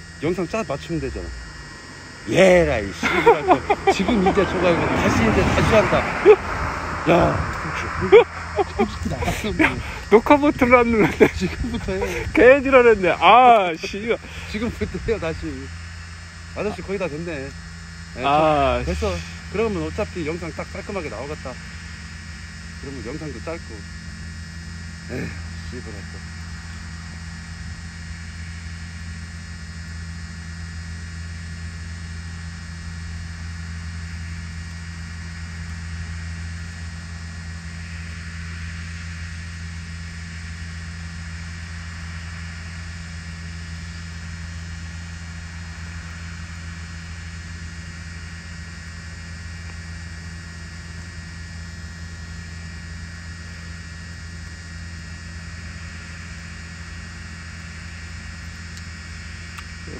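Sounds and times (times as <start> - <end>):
combine harvester engine humming: 0.0 - 24.2.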